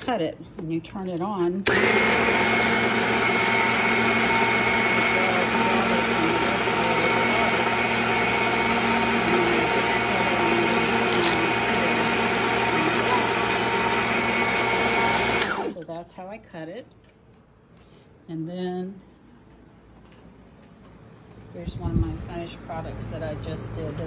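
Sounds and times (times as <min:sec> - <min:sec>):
saw cutting glass whining: 0:03.8 - 0:15.8.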